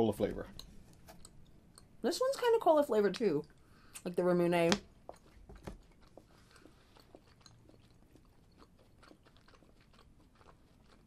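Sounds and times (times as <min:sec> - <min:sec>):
chewing gum mouth clicks: 0:05.0 - 0:11.0.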